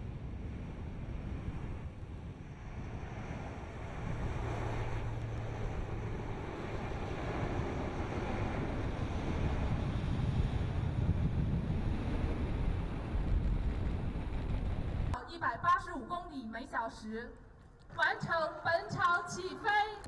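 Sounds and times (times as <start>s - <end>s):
wind on microphone: 0.0s - 15.2s
turboprop engines roaring: 0.0s - 20.0s.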